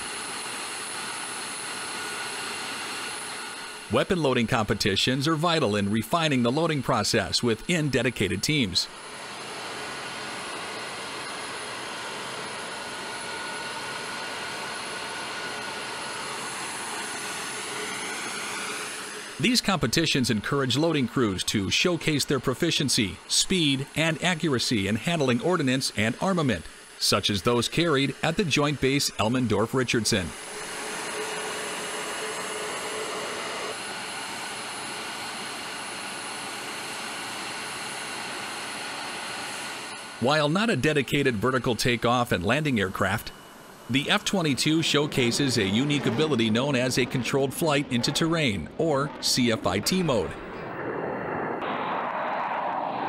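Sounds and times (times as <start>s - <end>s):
steady machine hiss: 0.0s - 46.0s
faint high whine: 0.0s - 53.0s
low hum: 40.0s - 53.0s
jet engine rushing hiss: 40.2s - 53.0s.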